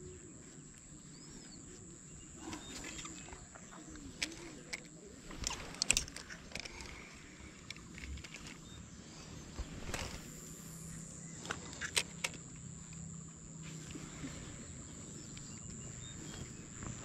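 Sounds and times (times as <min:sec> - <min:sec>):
fishing reel clicking: 0:03.9 - 0:13.1
high-pitched insect drone: 0:05.4 - 0:17.0.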